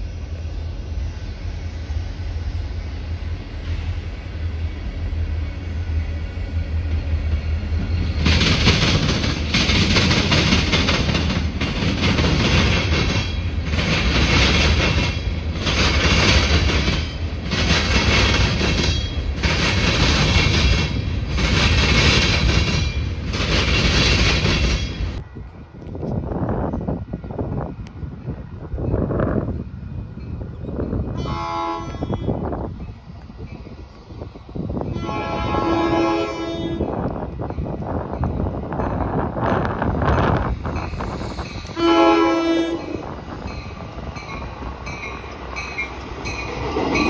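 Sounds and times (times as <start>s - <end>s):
train low rumble: 0.0s - 47.0s
train wheels clattering on rail: 6.6s - 25.2s, 36.8s - 47.0s.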